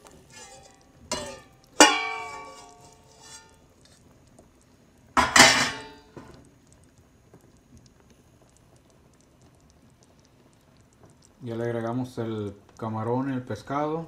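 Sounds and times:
metal knocking on steel pot: 1.1 - 2.8, 5.2 - 6.0.

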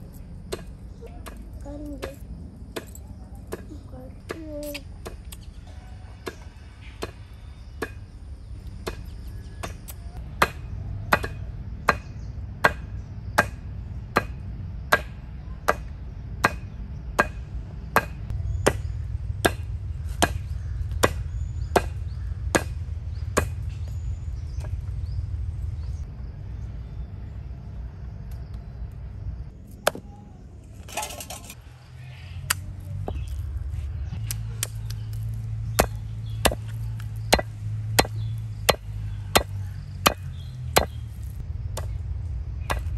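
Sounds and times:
mallet pounding meat on stone: 37.3 - 41.0.

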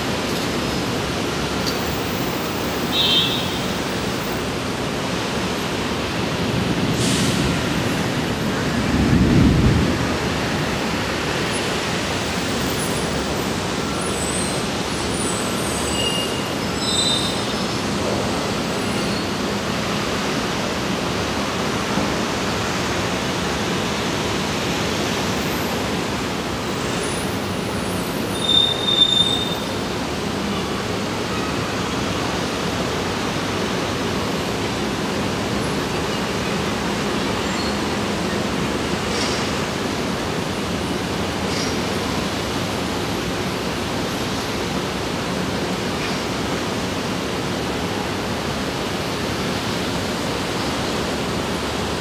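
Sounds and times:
brief high squeal: 15.2 - 17.6, 28.3 - 29.7.

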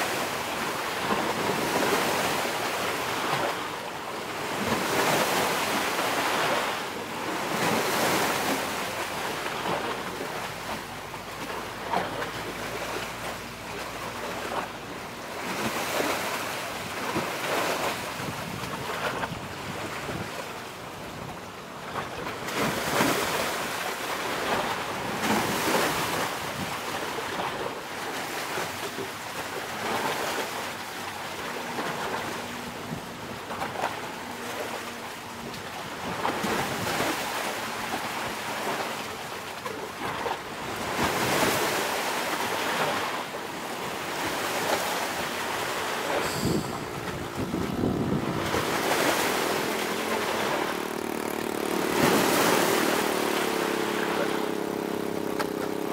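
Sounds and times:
surf washing on shore: 0.0 - 55.9
wind buffeting microphone: 16.8 - 21.4, 46.2 - 55.9
engine hum: 28.6 - 55.9.

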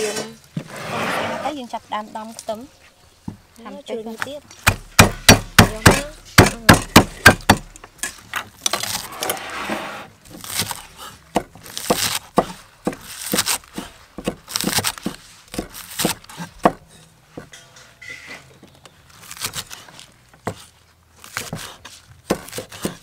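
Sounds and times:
cleaver chopping on wooden block: 4.6 - 7.8, 11.3 - 16.8, 21.3 - 23.0.

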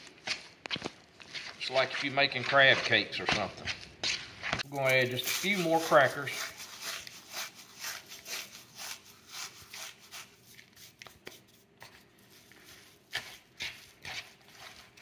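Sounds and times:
spoon stirring in plastic bowl: 4.8 - 15.0.

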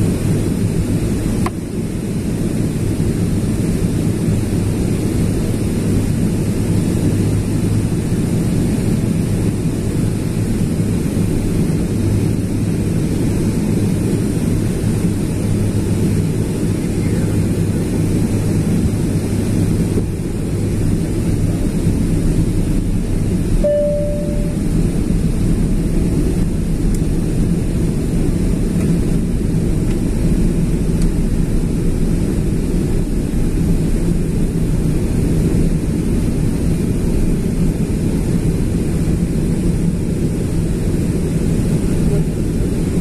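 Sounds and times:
air rushing along fuselage: 0.0 - 43.0
jet engine low roar: 0.0 - 43.0
steady low hums: 0.0 - 43.0.

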